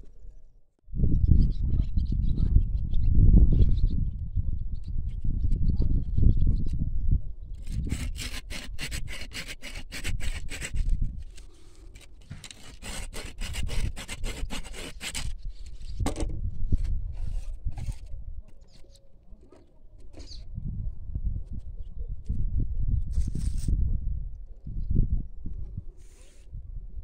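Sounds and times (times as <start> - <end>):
pruning saw rasping through wood: 7.6 - 15.4.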